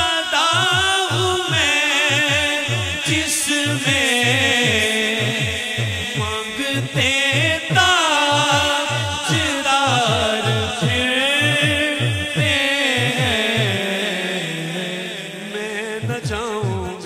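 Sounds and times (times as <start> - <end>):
low thumping beat: 0.0 - 14.0, 16.0 - 17.0
men singing through microphones: 0.0 - 17.0.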